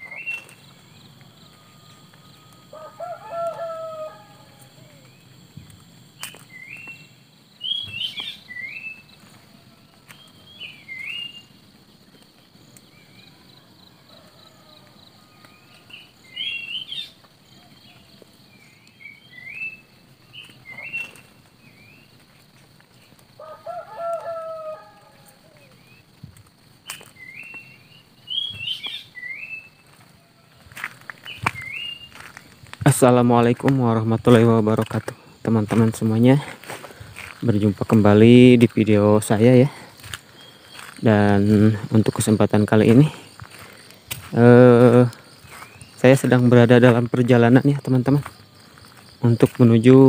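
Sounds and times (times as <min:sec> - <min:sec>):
songbirds whistling: 0:00.0 - 0:05.4, 0:06.2 - 0:22.2, 0:24.0 - 0:26.2, 0:26.9 - 0:32.5, 0:39.5 - 0:41.8, 0:45.0 - 0:46.4
rooster crowing: 0:01.2 - 0:05.2, 0:09.2 - 0:10.4, 0:13.1 - 0:16.2, 0:23.3 - 0:25.9, 0:29.8 - 0:31.0.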